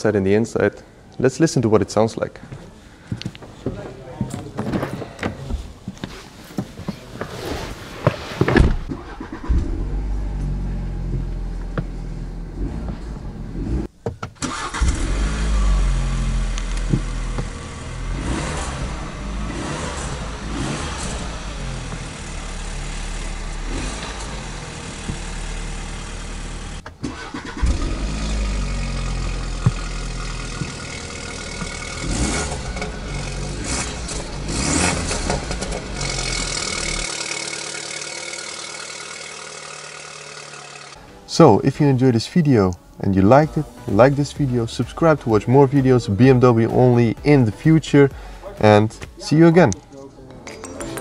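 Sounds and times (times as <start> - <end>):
car engine starting and idling: 8.6 - 48.4.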